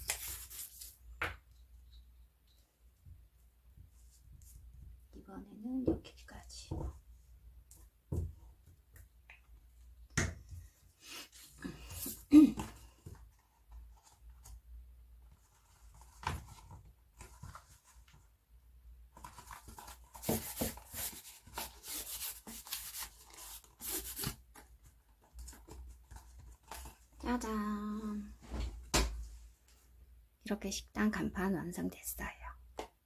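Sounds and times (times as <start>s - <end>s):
paper rustling and crinkling: 0.0s - 1.0s, 15.3s - 18.2s, 19.1s - 27.2s.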